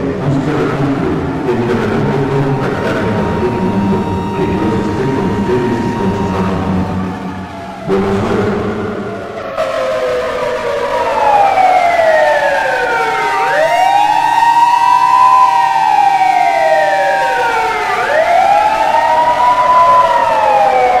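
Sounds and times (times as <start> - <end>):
siren wailing: 0.2 - 21.0
steady tone: 1.5 - 9.5.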